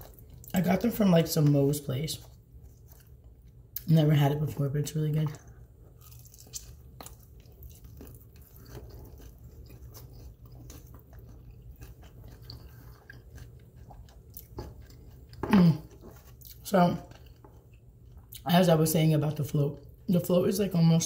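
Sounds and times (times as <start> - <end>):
chewing and biting food: 0.0 - 0.7, 1.4 - 3.9, 5.3 - 18.4.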